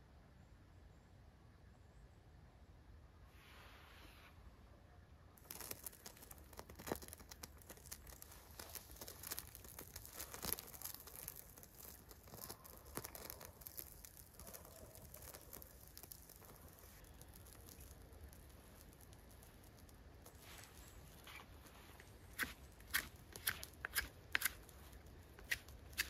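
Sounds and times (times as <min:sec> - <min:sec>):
campfire kindling crackling: 0:05.4 - 0:26.0.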